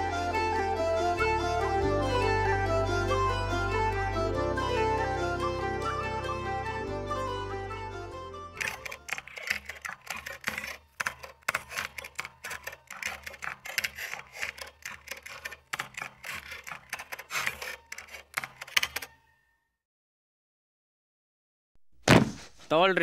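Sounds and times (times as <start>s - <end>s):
fast typing on laptop keyboard: 8.6s - 19.1s.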